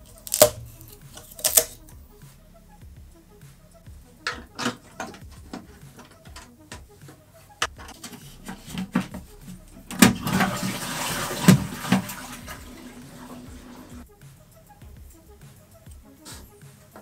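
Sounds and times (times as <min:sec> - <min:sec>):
toilet flushing water rush: 0:08.0 - 0:14.0
toilet flush clicks: 0:09.9 - 0:14.0.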